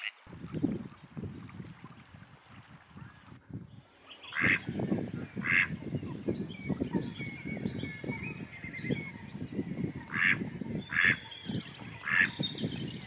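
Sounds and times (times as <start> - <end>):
waterfowl chattering calls: 4.0 - 9.3, 9.9 - 12.5
loud high bird calls: 4.0 - 13.0
thin wavering whistled call: 6.1 - 10.0.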